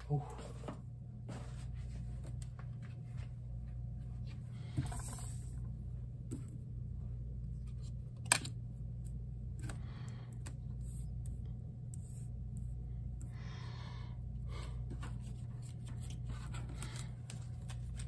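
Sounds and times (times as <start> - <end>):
steady low hum: 0.0 - 18.0
cards sliding and rustling: 14.9 - 18.0.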